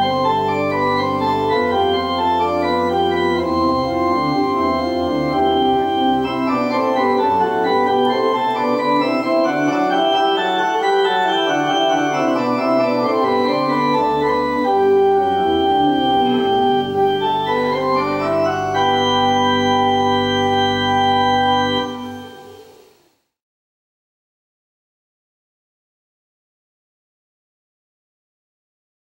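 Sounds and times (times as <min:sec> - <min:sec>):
organ playing: 0:00.0 - 0:22.9.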